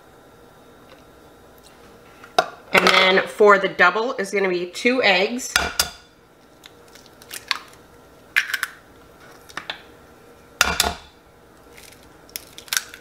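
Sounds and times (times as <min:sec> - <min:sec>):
eggshells cracking: 0:06.6 - 0:07.8, 0:08.4 - 0:08.8, 0:11.6 - 0:13.0.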